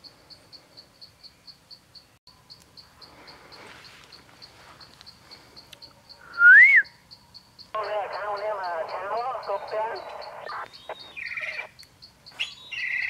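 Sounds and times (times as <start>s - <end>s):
cricket chirping: 0.0s - 13.0s
whistled note: 6.4s - 6.9s.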